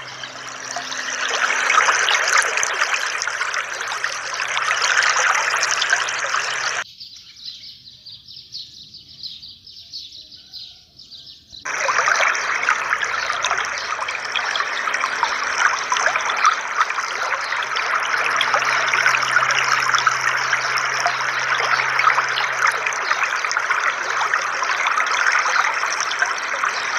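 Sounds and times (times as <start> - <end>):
fountain water splashing: 0.0 - 6.8, 11.7 - 26.9.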